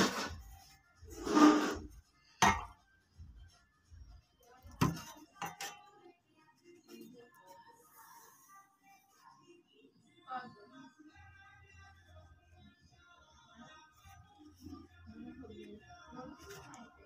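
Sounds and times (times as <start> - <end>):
blade scraping tabletop: 0.0 - 0.4, 1.1 - 1.9.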